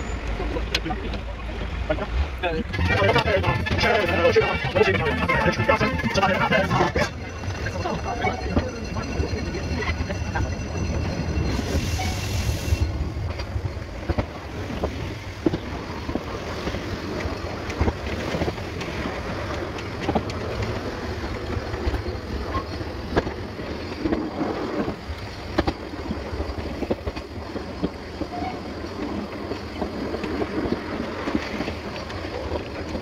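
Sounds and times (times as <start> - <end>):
train rumbling along track: 0.0 - 33.0.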